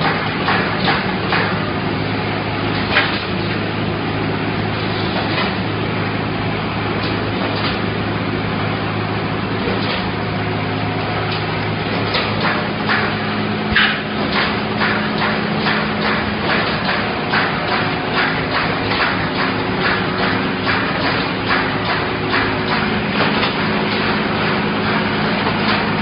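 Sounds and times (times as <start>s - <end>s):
welding machine hum: 0.0s - 26.0s
short clacks and knocks: 12.0s - 24.2s.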